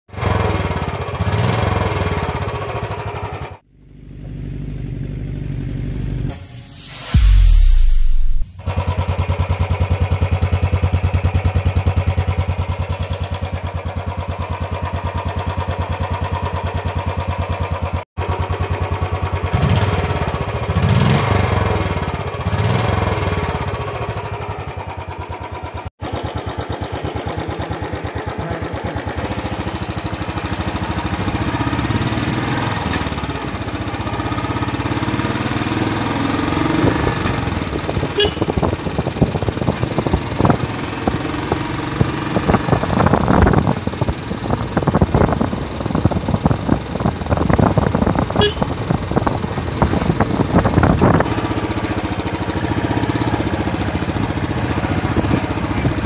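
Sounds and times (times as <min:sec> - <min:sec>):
motorcycle engine thumping: 0:23.7 - 0:56.0.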